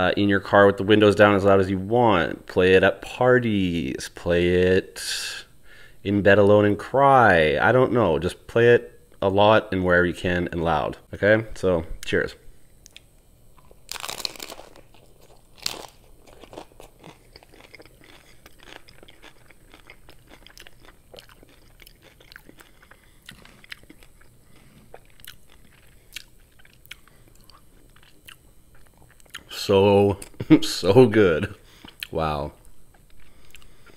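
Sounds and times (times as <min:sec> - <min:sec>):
crunchy chewing: 0:12.8 - 0:29.5, 0:31.7 - 0:33.9
crunchy taco bite: 0:12.9 - 0:29.5.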